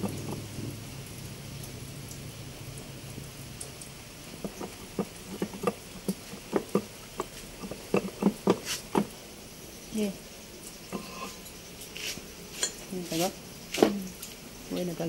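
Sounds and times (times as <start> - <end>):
steel rod knocking on metal: 4.4 - 9.1.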